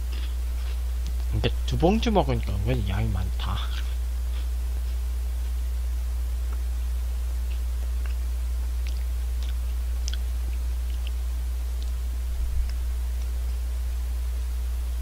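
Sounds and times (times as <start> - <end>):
low electrical hum: 0.0 - 15.0
chips being chewed: 7.4 - 14.0.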